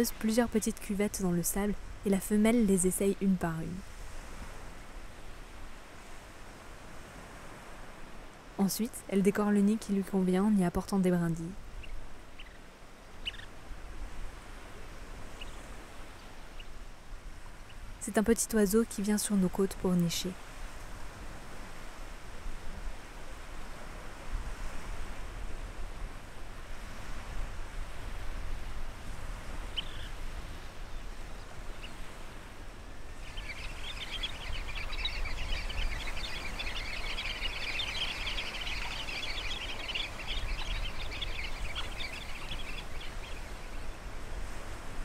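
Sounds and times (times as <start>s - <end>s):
low wind rumble: 0.0s - 45.0s
many high bird calls: 13.2s - 13.5s, 29.7s - 30.2s, 33.1s - 44.0s.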